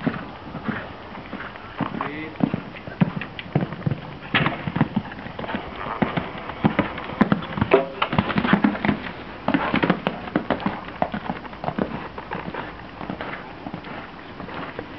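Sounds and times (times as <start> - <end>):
horse hooves thudding on sand: 0.0 - 14.9.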